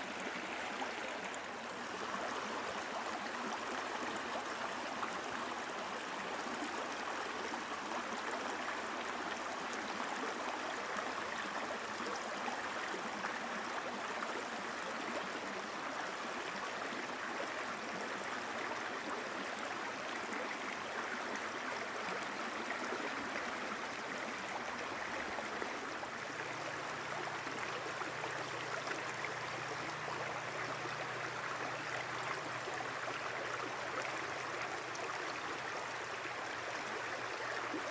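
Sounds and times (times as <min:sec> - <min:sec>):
flowing water rushing: 0:00.0 - 0:37.9.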